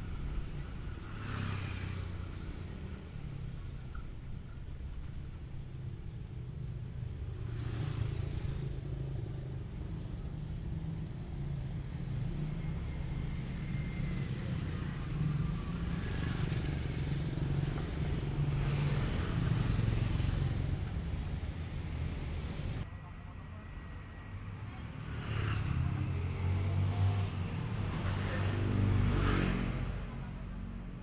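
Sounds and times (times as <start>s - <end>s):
motorbikes passing: 0.0s - 4.4s, 10.8s - 22.9s, 24.4s - 30.8s
road traffic: 0.0s - 31.0s.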